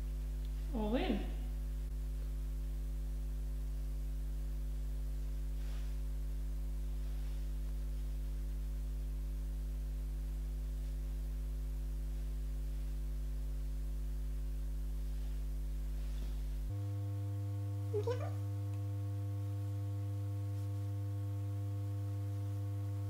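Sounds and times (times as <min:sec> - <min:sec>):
electrical mains hum: 0:00.0 - 0:23.0
faint soft rustle: 0:04.9 - 0:08.6, 0:12.0 - 0:13.4, 0:14.9 - 0:16.8, 0:20.4 - 0:21.2.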